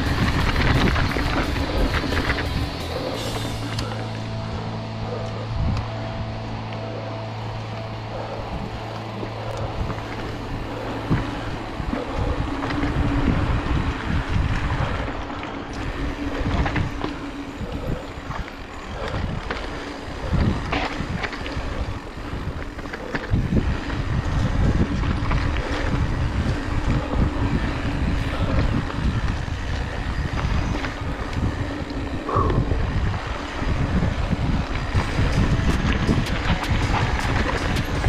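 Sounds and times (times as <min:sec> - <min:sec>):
tyres rolling on dirt: 0:00.0 - 0:04.2, 0:33.1 - 0:38.0
bike clicks and rattles: 0:00.0 - 0:06.0, 0:06.7 - 0:38.0
wind buffeting microphone: 0:00.0 - 0:38.0.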